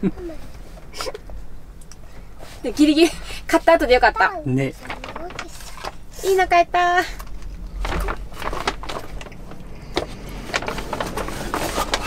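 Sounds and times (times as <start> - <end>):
paper bag rustling: 4.6 - 12.0.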